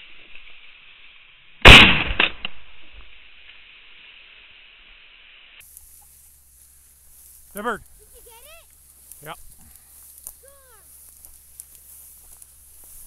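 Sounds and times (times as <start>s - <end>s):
shotgun blast: 1.6s - 2.9s.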